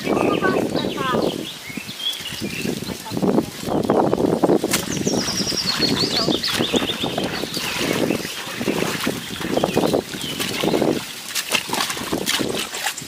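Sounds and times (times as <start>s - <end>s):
wading through shallow water: 0.0s - 13.0s
hands squelching mud: 4.5s - 13.0s.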